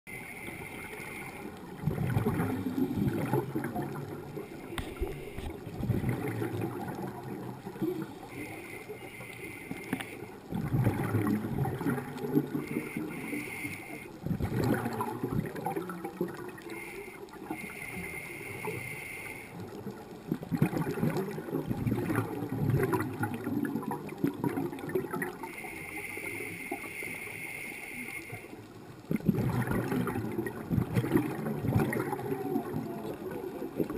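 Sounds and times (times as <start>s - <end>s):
scuba regulator breathing: 0.1s - 5.6s, 7.8s - 10.4s, 12.5s - 14.2s, 16.7s - 19.6s, 25.5s - 28.6s.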